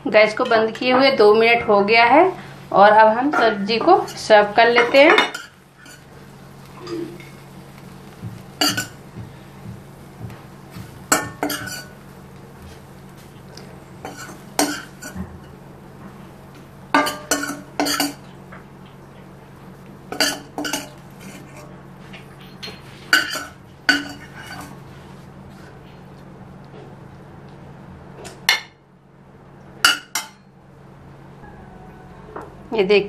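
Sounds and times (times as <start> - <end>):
metal spoon scraping pan: 3.3 - 6.0, 11.2 - 11.9, 22.5 - 24.8.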